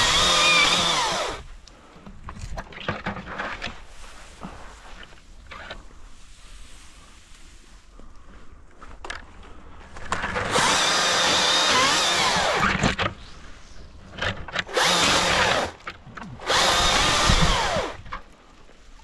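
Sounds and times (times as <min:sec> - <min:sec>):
battery chainsaw cutting branches: 0:00.0 - 0:01.6, 0:10.2 - 0:13.2, 0:14.1 - 0:18.2.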